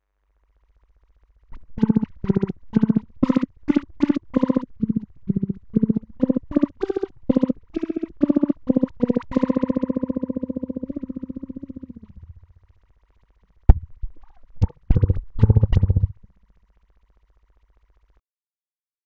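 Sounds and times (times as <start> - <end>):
pulsing flanged instrument notes: 7.3 - 12.4.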